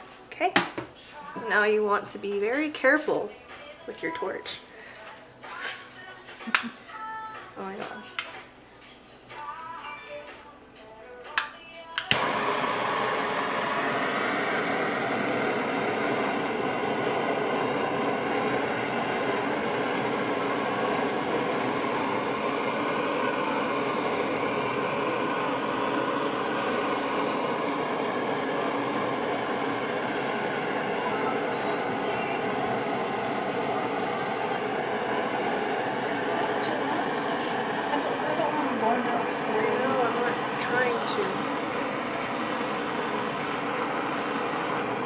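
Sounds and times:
gas torch igniter clicks: 0:11.3 - 0:13.2
torch flame hissing: 0:12.0 - 0:45.0.

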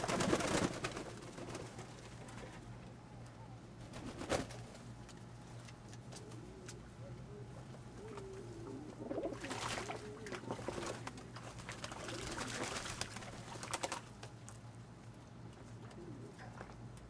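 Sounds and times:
pigeons cooing: 0:06.0 - 0:14.0, 0:15.7 - 0:16.9
birds splashing in water: 0:09.0 - 0:14.6.

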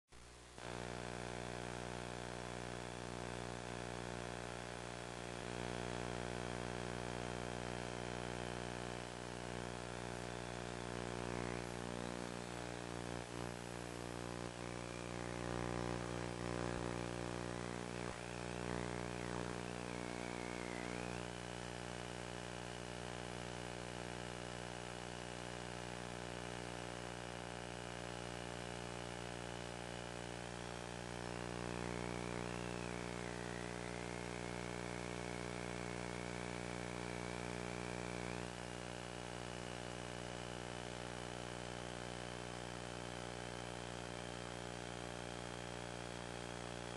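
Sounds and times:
drone propellers humming: 0:18.2 - 0:21.2.

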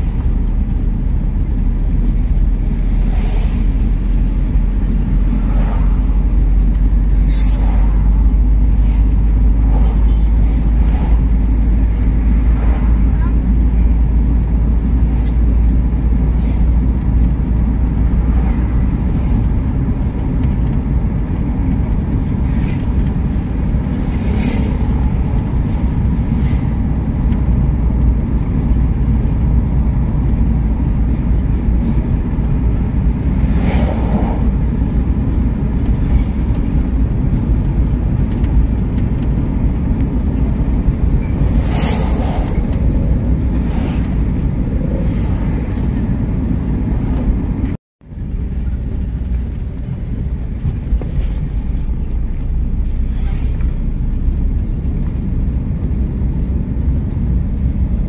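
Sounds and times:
car road and engine rumble: 0:00.0 - 0:58.0
brief whooshes: 0:41.4 - 0:42.7.

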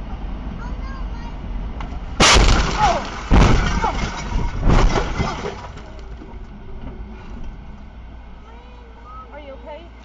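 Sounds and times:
heavy vehicle impacts: 0:01.8 - 0:07.9
glass breaking: 0:02.2 - 0:05.9
car crash smash: 0:02.2 - 0:06.0
debris striking: 0:02.2 - 0:06.1.

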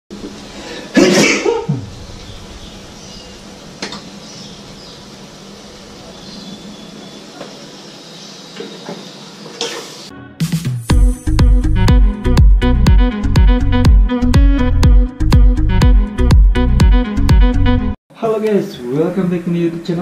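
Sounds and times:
food sizzling in a wok: 0:09.6 - 0:10.1
music: 0:10.1 - 0:18.0.

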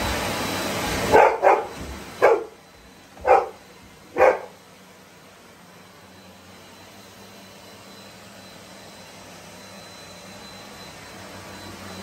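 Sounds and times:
vacuum cleaner running: 0:00.0 - 0:12.0
dog barking: 0:01.1 - 0:02.6, 0:03.2 - 0:04.6.

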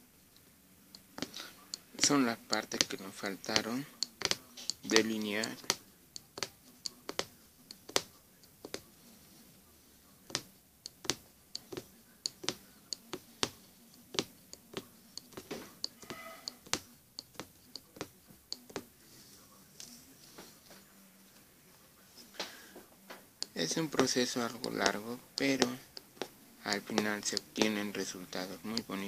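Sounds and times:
punch needle clicking through fabric: 0:01.0 - 0:08.8, 0:10.3 - 0:18.8, 0:23.4 - 0:28.1.

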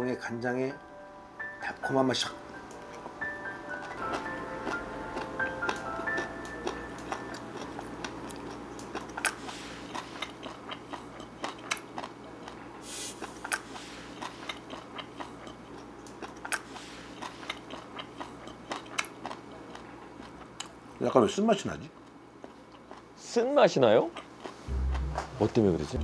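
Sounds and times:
person chewing crunchy food: 0:03.8 - 0:20.8, 0:22.4 - 0:23.1.

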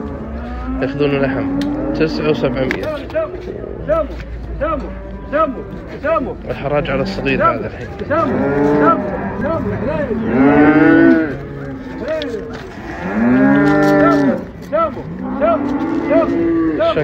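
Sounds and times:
calf mooing: 0:10.2 - 0:12.1, 0:12.8 - 0:14.4, 0:15.1 - 0:17.0.

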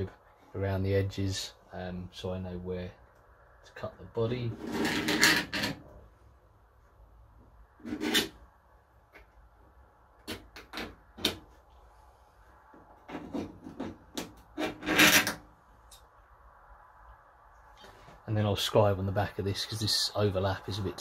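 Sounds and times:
scriber scratching sheet steel: 0:04.5 - 0:05.8, 0:07.8 - 0:08.4, 0:13.1 - 0:15.4.

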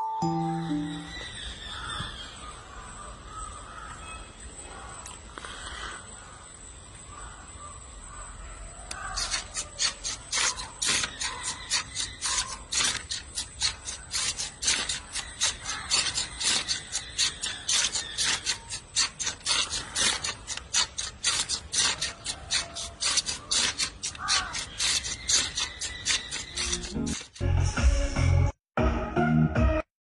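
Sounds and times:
servo motors buzzing in bursts: 0:08.9 - 0:27.4.

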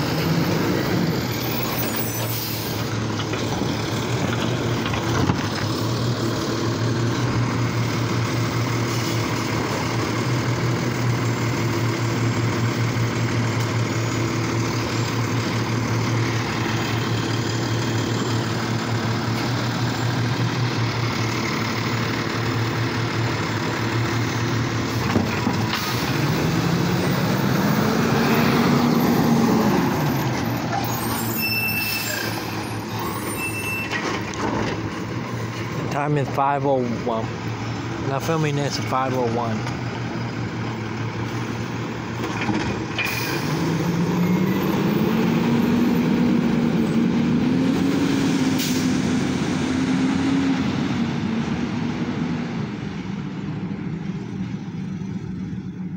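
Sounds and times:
diesel truck engine idling: 0:00.0 - 0:31.2, 0:32.1 - 0:42.2.

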